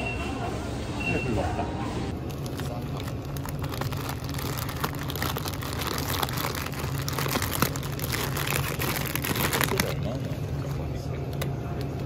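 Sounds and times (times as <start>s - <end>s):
plastic packets crinkling: 2.2s - 11.4s.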